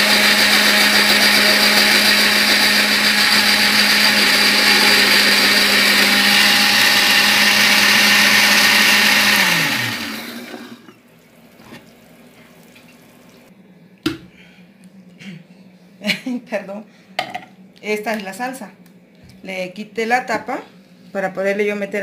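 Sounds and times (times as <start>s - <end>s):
motor winding down: 0.0s - 10.9s
blender running: 0.0s - 11.0s.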